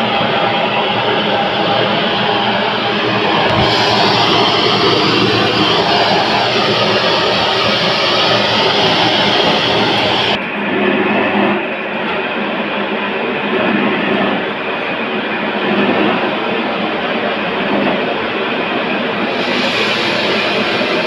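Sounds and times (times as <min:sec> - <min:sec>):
cutting machine running: 0:00.0 - 0:10.4, 0:19.3 - 0:21.0
gas blowtorch roaring: 0:00.0 - 0:10.4, 0:19.2 - 0:21.0.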